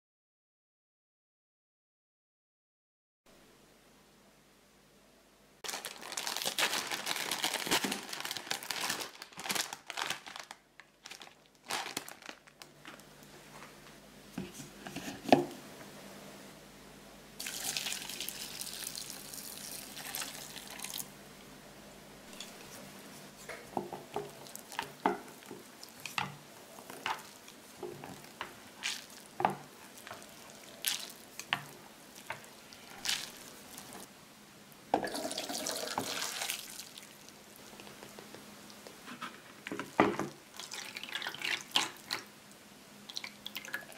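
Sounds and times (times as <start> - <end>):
plastic packaging crinkling: 5.6 - 13.3, 26.8 - 34.1
hot water pouring into bowl: 17.4 - 21.0, 35.0 - 37.0.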